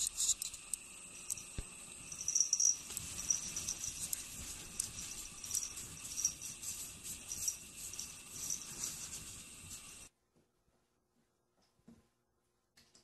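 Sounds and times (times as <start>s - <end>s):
cat paws scratching snow: 2.3s - 10.1s.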